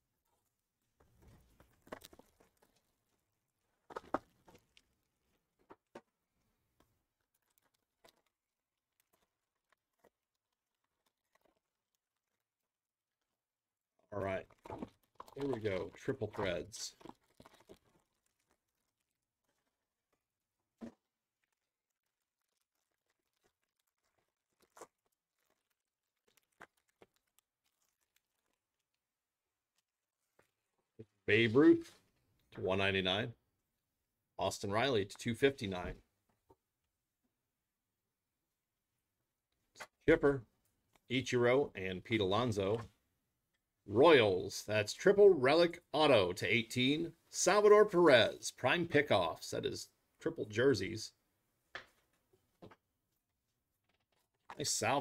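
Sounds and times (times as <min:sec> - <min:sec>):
foil wrapper crinkling and tearing: 0:14.5 - 0:29.1.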